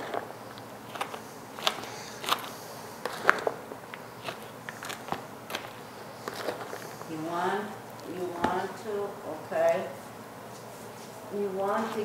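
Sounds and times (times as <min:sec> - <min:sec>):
spoon scraping a mixing bowl: 0:00.0 - 0:07.1.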